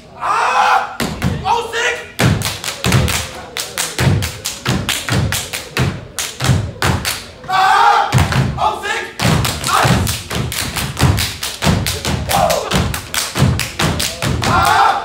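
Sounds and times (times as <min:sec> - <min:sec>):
loud shout of voices: 0:00.1 - 0:02.0, 0:07.4 - 0:10.0, 0:12.3 - 0:12.8, 0:14.3 - 0:15.0
rhythmic foot stomps on stage: 0:02.2 - 0:07.3, 0:08.1 - 0:08.6, 0:09.2 - 0:14.9.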